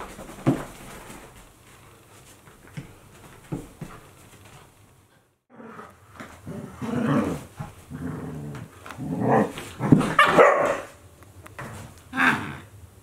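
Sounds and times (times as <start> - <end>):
dogs growling and barking: 5.5 - 10.9.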